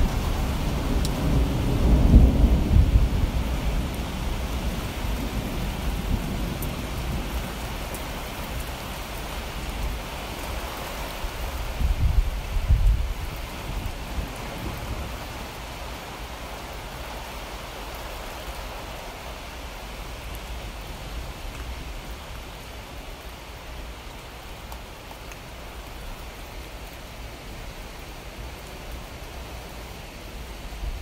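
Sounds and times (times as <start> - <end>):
steady rain hiss: 0.0 - 31.0
rain drop ticks: 1.0 - 1.2, 6.5 - 9.8, 21.5 - 21.7, 24.1 - 27.0.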